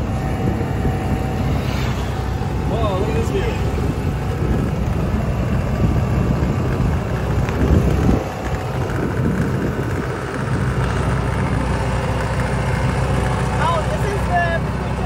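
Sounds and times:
wind noise on microphone: 0:00.0 - 0:12.0
vehicle engine rumble: 0:00.0 - 0:15.0.

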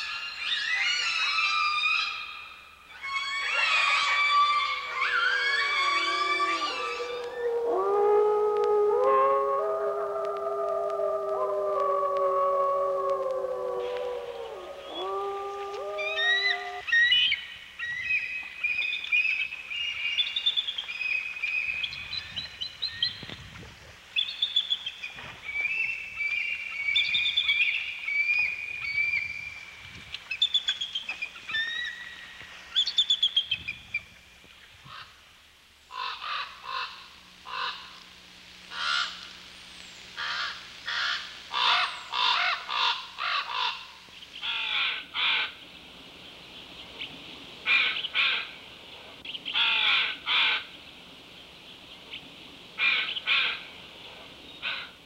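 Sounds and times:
eagles high piping calls: 0:02.9 - 0:17.2
crows cawing: 0:35.9 - 0:37.9, 0:38.8 - 0:39.2, 0:40.2 - 0:45.5, 0:49.6 - 0:50.6.

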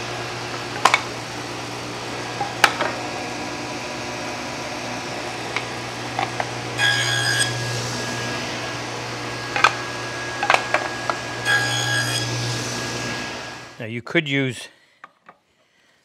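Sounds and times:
saw cutting wood whine: 0:00.0 - 0:13.8
table saw blade humming: 0:00.0 - 0:13.8
boards knocking on saw table: 0:00.8 - 0:01.1, 0:02.4 - 0:03.0, 0:05.5 - 0:06.6, 0:09.5 - 0:11.2.

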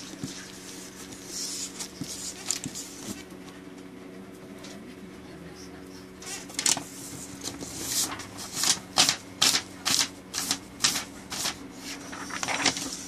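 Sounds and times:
scratchy strokes on paper: 0:00.0 - 0:03.2.

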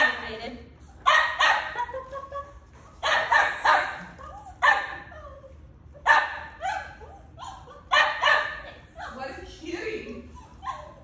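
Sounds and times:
puppy barking: 0:01.0 - 0:02.1, 0:03.0 - 0:05.4, 0:06.0 - 0:09.2.

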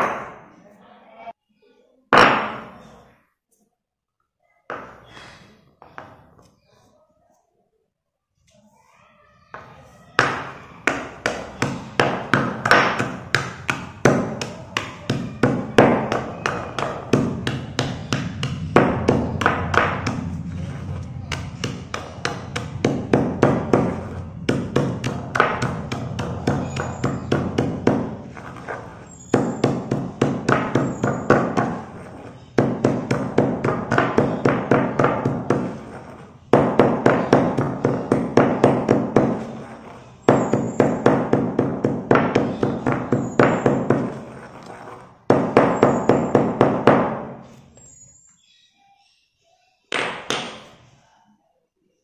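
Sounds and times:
pestle pounding in stone mortar: 0:21.3 - 0:28.4, 0:29.0 - 0:31.9, 0:32.5 - 0:35.9, 0:36.5 - 0:39.6, 0:40.2 - 0:44.3, 0:45.3 - 0:47.3.

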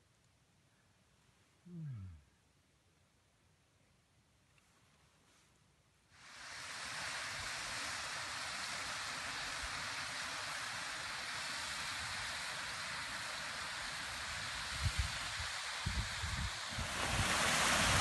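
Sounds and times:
stream rushing over rocks: 0:06.2 - 0:18.0.

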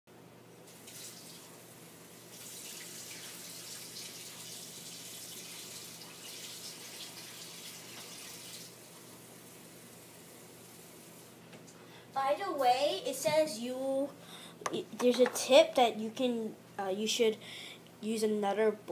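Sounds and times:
tap water running into sink: 0:00.7 - 0:01.5, 0:02.3 - 0:08.8
low steady hum: 0:08.7 - 0:18.9.

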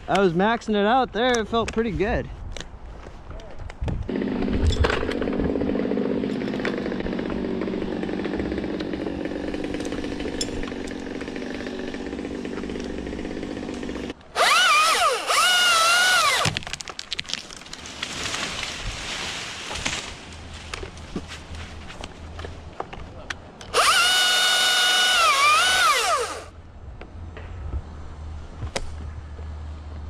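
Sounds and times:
chainsaw cutting wood: 0:04.1 - 0:16.8, 0:23.7 - 0:26.5.

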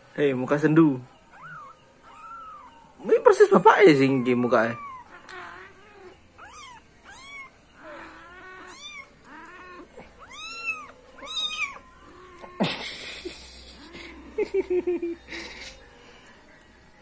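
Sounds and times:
kitten mewing: 0:03.5 - 0:12.8.

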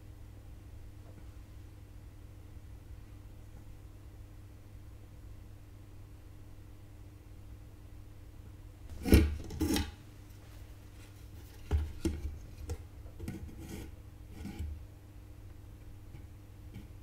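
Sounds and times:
tools scraping on workbench: 0:08.9 - 0:10.0.

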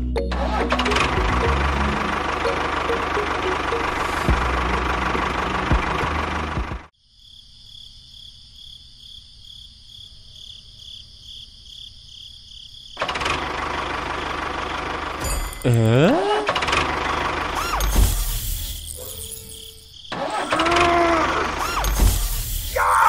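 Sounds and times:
tractor engine running: 0:00.1 - 0:06.9, 0:13.0 - 0:22.8.

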